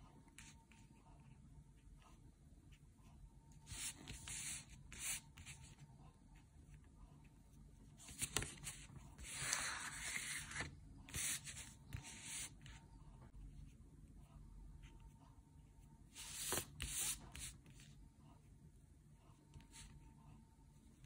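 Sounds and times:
paintbrush scratching on paper: 3.6 - 5.9, 8.0 - 12.8, 16.2 - 17.8.

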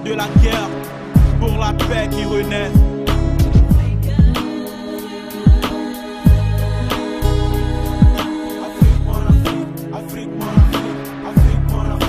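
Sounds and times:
snare hit: 0.2 - 2.1
deep kick drums: 0.4 - 0.6, 1.2 - 1.7, 2.8 - 4.4, 6.3 - 6.6, 8.8 - 9.5, 11.4 - 11.7
low bass note: 1.2 - 4.4.

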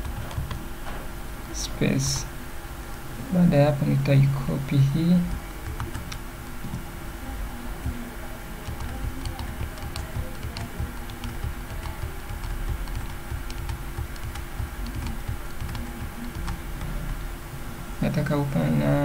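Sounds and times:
computer keyboard clicking: 0.0 - 0.6, 5.3 - 6.8, 8.6 - 17.2.

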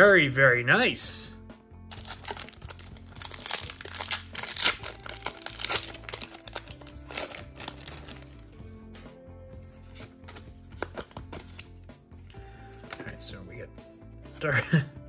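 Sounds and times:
background music: 0.0 - 15.0
foil wrapper crinkling and tearing: 1.9 - 8.6.

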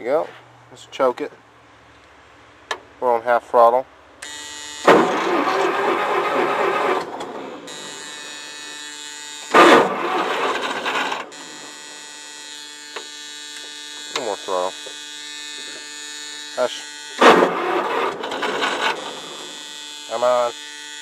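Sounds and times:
steady electric buzz: 4.1 - 21.0
starter cranking engine: 4.8 - 8.4, 9.5 - 11.8, 17.2 - 19.7.

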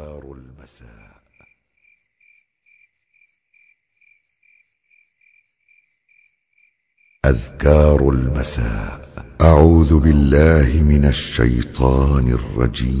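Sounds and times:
crickets chirping: 0.8 - 7.3.

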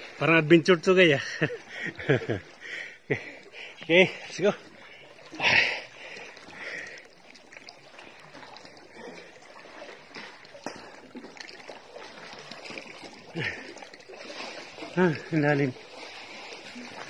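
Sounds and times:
sea water splashing: 0.0 - 17.0
water lapping: 0.0 - 17.0.

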